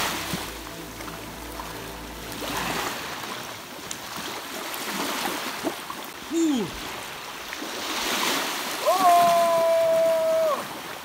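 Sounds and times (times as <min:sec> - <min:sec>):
sea water splashing and lapping: 0:00.0 - 0:11.0
man shouting: 0:06.3 - 0:06.8, 0:08.8 - 0:10.7.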